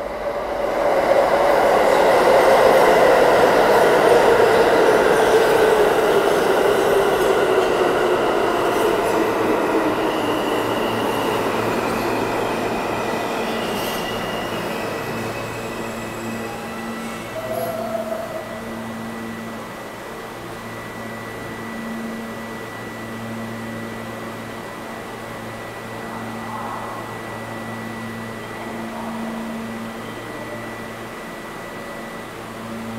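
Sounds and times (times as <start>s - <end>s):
subway train braking: 0.0s - 32.9s
high brake squeals: 13.0s - 18.3s.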